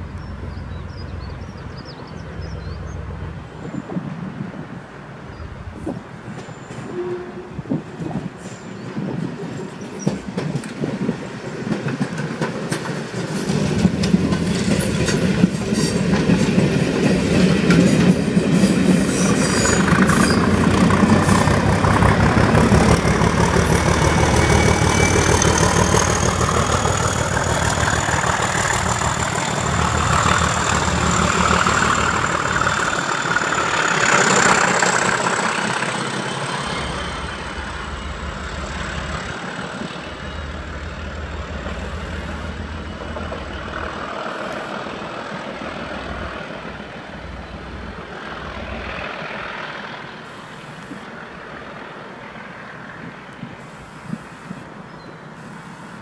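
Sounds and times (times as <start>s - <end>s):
diesel locomotive engine working hard: 0.0s - 56.0s
wheels clicking over rail joints: 8.9s - 40.0s.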